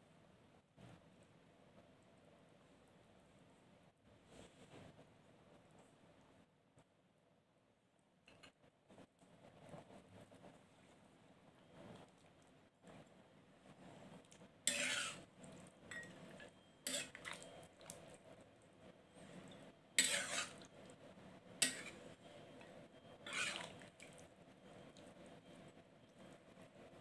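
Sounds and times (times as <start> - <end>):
metal ladle scraping pan: 14.7 - 15.3, 15.9 - 17.5, 20.0 - 20.7, 21.6 - 22.2, 23.2 - 24.0.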